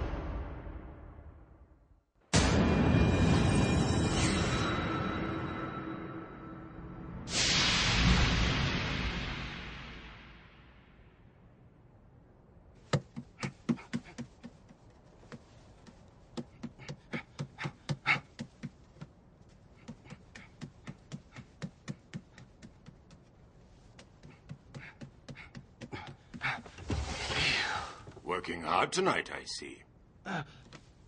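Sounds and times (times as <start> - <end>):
footsteps pattering on wooden floor: 13.0 - 27.2.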